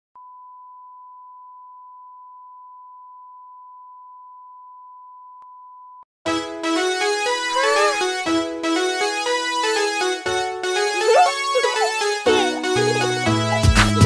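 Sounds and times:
nursery rhyme music: 0:06.3 - 0:14.0.

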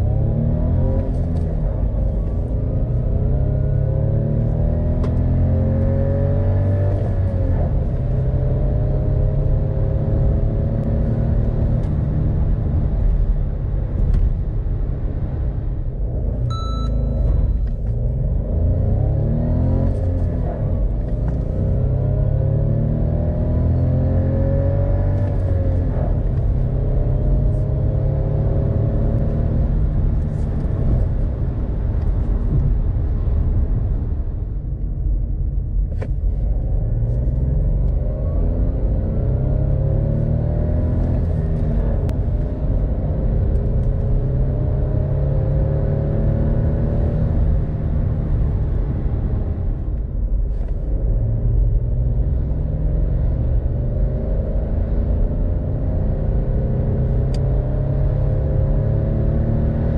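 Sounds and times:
car engine accelerating: 0:00.0 - 0:59.9
short electronic beep: 0:16.5 - 0:17.7.

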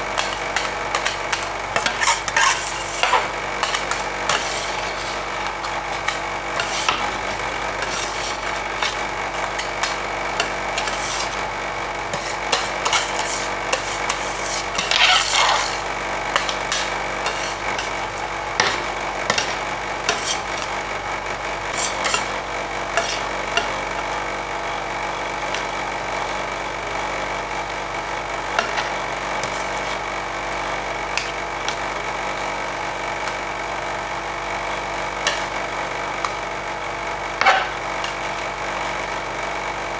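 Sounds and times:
machine hum: 0:00.0 - 0:39.9
metal spatulas scraping steel plate: 0:00.2 - 0:07.2, 0:07.8 - 0:11.4, 0:12.1 - 0:18.0, 0:18.6 - 0:20.7, 0:21.7 - 0:22.3, 0:22.9 - 0:23.8, 0:28.6 - 0:30.0, 0:35.2 - 0:35.5, 0:37.4 - 0:38.4.

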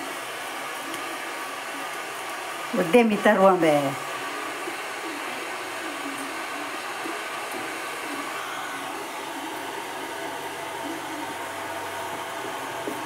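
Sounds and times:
steady whirring hiss: 0:00.0 - 0:13.0.

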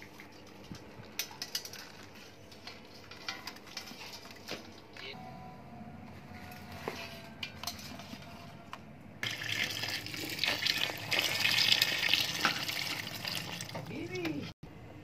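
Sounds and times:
water splashing into pot: 0:09.2 - 0:13.9.

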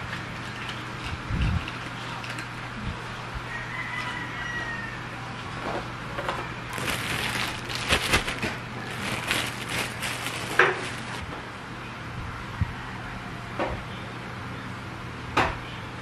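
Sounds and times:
plastic bag crinkling: 0:06.7 - 0:11.3.

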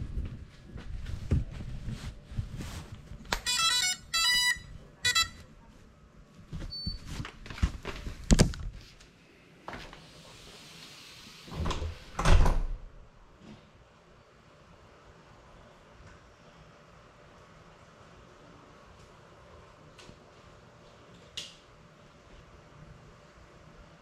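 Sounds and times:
short electronic beeps: 0:03.4 - 0:05.4.

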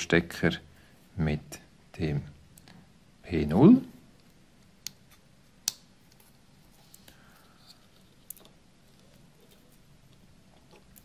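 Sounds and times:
wires being handled: 0:04.0 - 0:11.0.

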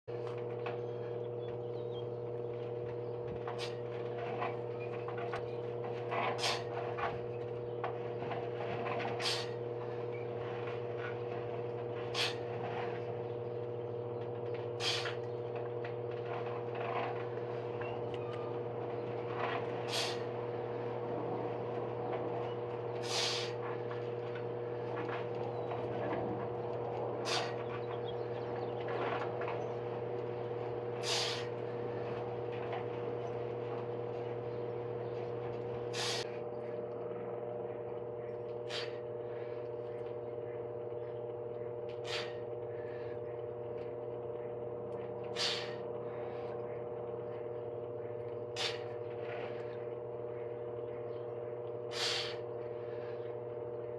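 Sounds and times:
steady hum: 0:00.1 - 0:53.9
person exhaling sharply: 0:51.9 - 0:52.4.

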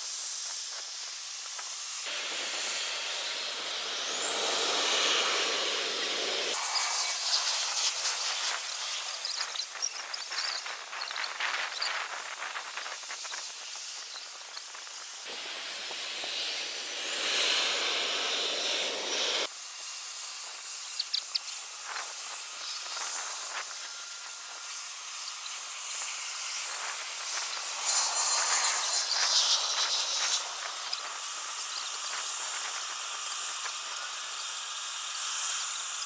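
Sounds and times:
high jet engine whine: 0:00.1 - 0:36.0
jet aircraft hissing: 0:00.3 - 0:19.5.

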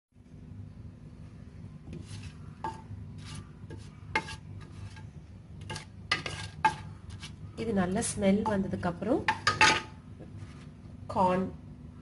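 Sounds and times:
steady low hum: 0:00.2 - 0:12.0
wooden spatula scraping metal pot: 0:01.8 - 0:07.4, 0:08.0 - 0:10.0.

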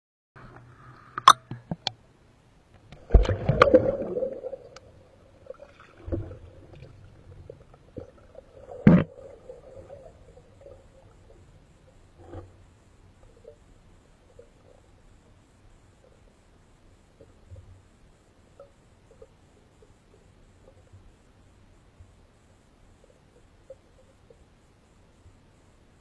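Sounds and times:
water splashing: 0:03.0 - 0:11.4.

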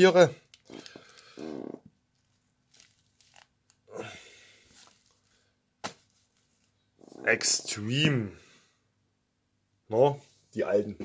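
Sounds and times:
plastic wrap crinkling: 0:00.5 - 0:01.5, 0:02.1 - 0:03.8.

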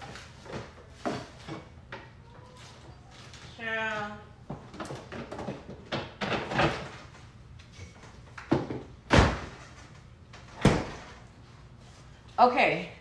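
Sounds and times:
knocks and thuds in refrigerator: 0:08.5 - 0:09.6.

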